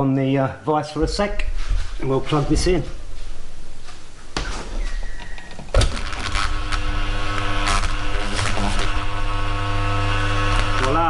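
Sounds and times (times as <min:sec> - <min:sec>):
electric motor humming: 0:05.7 - 0:11.0.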